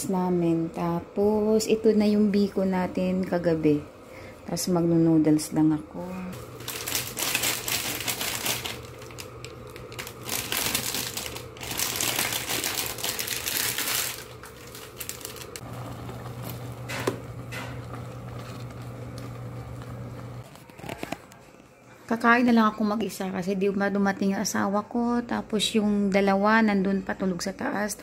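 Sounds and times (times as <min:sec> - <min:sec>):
steady low hum: 0:00.0 - 0:20.6
plastic wrapper crinkling: 0:06.4 - 0:16.7, 0:17.6 - 0:21.5
noodle bits falling into pot: 0:06.6 - 0:21.2.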